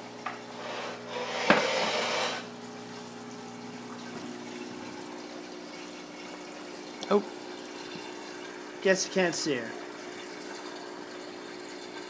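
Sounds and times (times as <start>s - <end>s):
pump humming: 0.0s - 12.0s
water rushing through aquarium: 0.1s - 12.0s.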